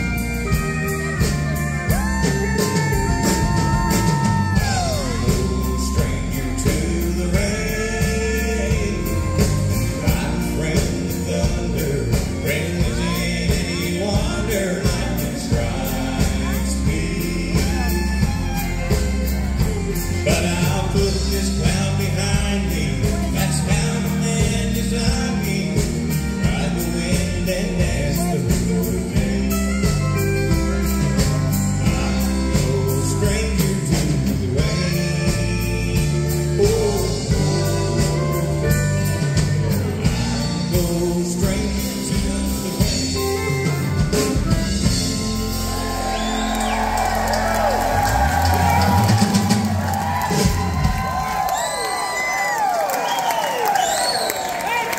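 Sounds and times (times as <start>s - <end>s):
fiddle: 0.0s - 40.6s
man singing: 0.0s - 48.0s
country band playing: 0.0s - 54.9s.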